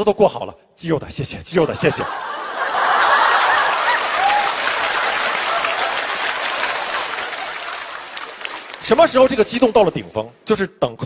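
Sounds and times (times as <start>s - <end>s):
audience applauding: 1.8s - 9.5s.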